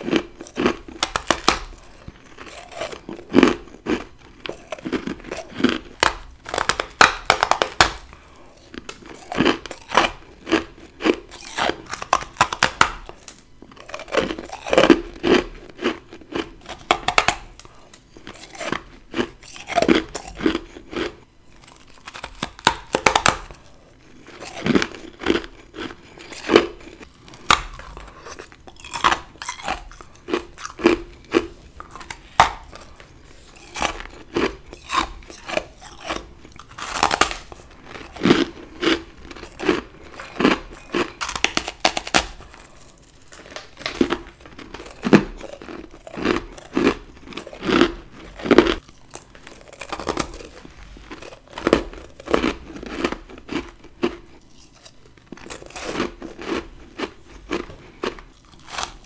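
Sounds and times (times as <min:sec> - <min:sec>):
chewing crunches: 0:00.0 - 0:59.0
crunchy bites of frost: 0:24.2 - 0:59.0.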